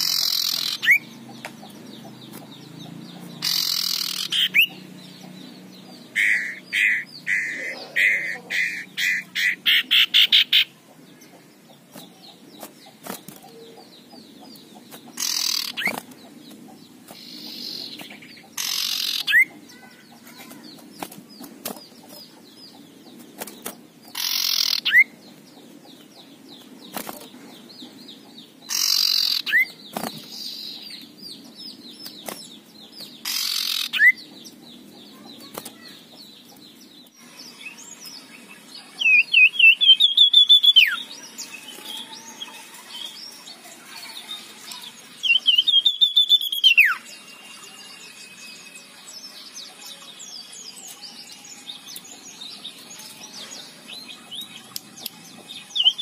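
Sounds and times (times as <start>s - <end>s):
bird rasping calls: 0.0s - 1.1s, 3.4s - 4.8s, 6.1s - 10.7s, 15.2s - 16.0s, 17.2s - 20.6s, 24.1s - 25.0s, 28.7s - 29.7s
fast run of bird notes: 0.0s - 10.7s.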